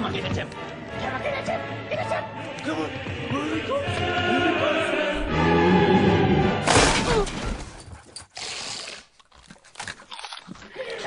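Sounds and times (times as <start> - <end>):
dramatic music: 0.0 - 7.0
glass shattering crash: 6.6 - 7.9.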